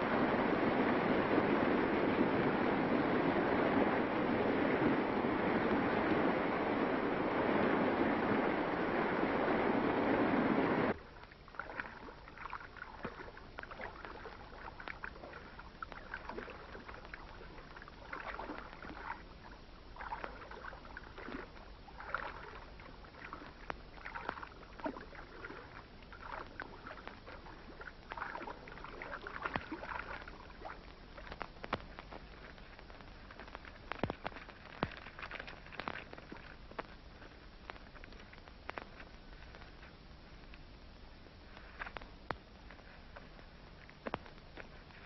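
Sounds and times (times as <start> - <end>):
paddle splashing water: 0.0 - 40.5.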